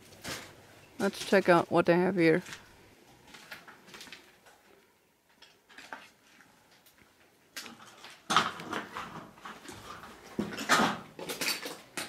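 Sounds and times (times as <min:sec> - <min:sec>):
clatter and scrape: 0:07.6 - 0:11.9.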